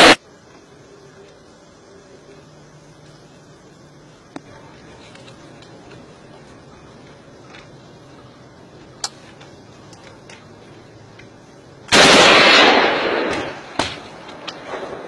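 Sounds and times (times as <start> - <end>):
loud burst of gunfire: 0.0 - 0.2, 11.9 - 15.0
sharp gunshot crack: 11.9 - 15.0.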